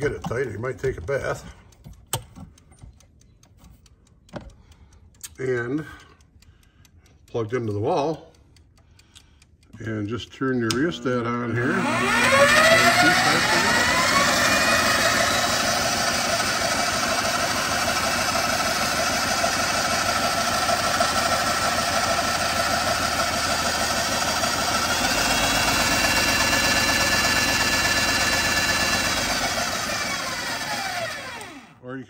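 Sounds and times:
electric drill motor whine: 0:11.6 - 0:31.8.

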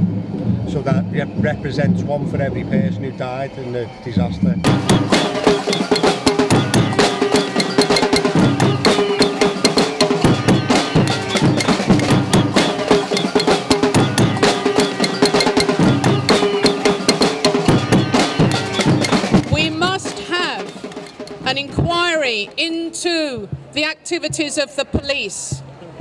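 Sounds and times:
pots pans and drums beaten: 0:04.6 - 0:24.5.

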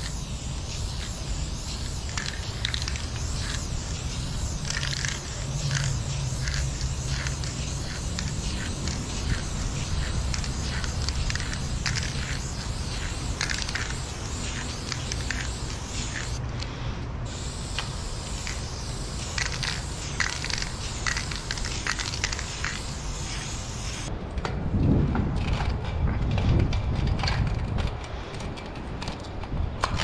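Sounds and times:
spray paint can hissing: 0:00.0 - 0:16.4, 0:17.3 - 0:24.1.

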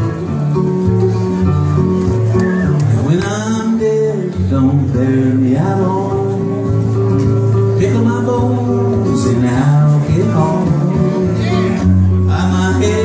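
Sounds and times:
strummed guitar: 0:00.0 - 0:13.0
man singing: 0:02.9 - 0:13.0.

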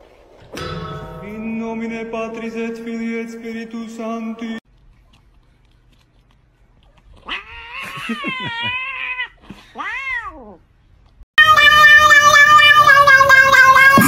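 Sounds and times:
cat yowling and meowing: 0:11.4 - 0:14.0.

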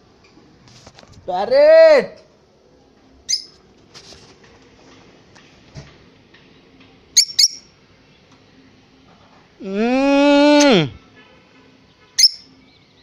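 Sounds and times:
lovebird chirping: 0:03.3 - 0:03.6, 0:07.2 - 0:07.7, 0:12.2 - 0:13.0.

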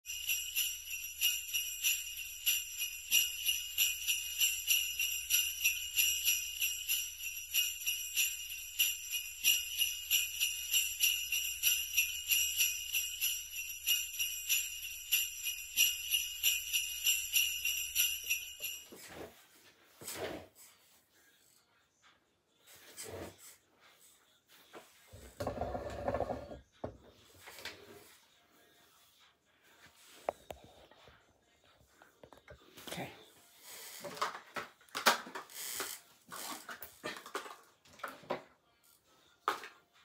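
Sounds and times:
jingle bells shaken: 0:00.0 - 0:19.3, 0:33.8 - 0:38.1.

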